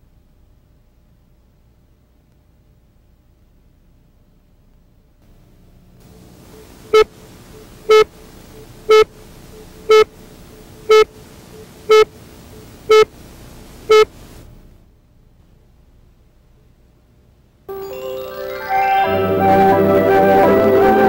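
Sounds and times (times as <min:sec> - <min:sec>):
steady hiss: 0:05.2 - 0:14.9
short buzzy beeps: 0:07.9 - 0:08.1, 0:08.9 - 0:09.1, 0:09.9 - 0:10.1, 0:10.9 - 0:11.1, 0:11.9 - 0:12.1.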